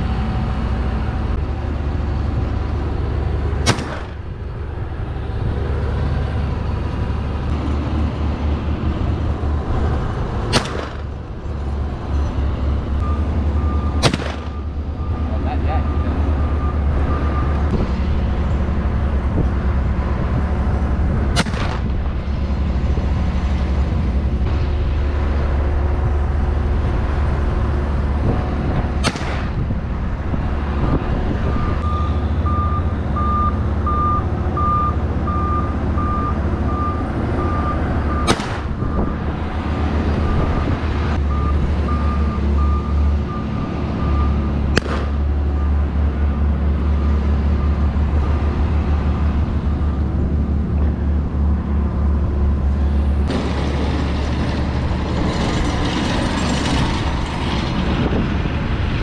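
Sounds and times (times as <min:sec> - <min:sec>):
steady low rumble: 0:00.0 - 0:59.0
shotgun shots: 0:03.6 - 0:04.2, 0:10.5 - 0:11.1, 0:14.0 - 0:14.6, 0:21.3 - 0:22.0, 0:29.0 - 0:29.6, 0:38.3 - 0:38.7, 0:44.7 - 0:45.2
vehicle reversing alarm beeping: 0:12.1 - 0:17.8, 0:31.4 - 0:39.4, 0:40.1 - 0:50.3.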